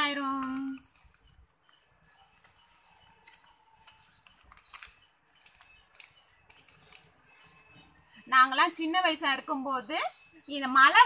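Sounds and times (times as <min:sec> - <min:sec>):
small animal chirping: 0:00.1 - 0:11.0
paper rustling: 0:00.4 - 0:08.0.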